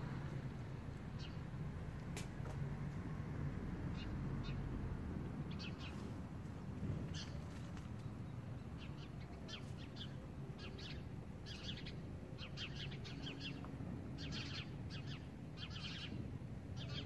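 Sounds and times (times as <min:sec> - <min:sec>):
small birds chirping: 0:01.1 - 0:01.5, 0:03.9 - 0:04.8, 0:05.4 - 0:06.2, 0:07.1 - 0:17.0.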